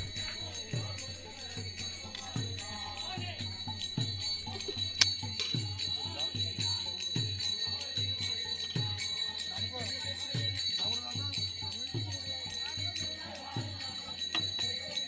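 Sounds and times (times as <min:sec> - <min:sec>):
drum beating: 0:00.0 - 0:05.0
group singing: 0:00.0 - 0:05.1
jingling hand cymbals: 0:00.0 - 0:15.0.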